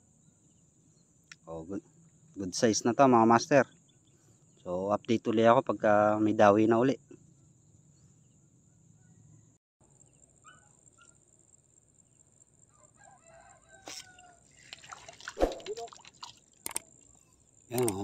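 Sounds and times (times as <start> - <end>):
rooster crowing: 12.7 - 14.5.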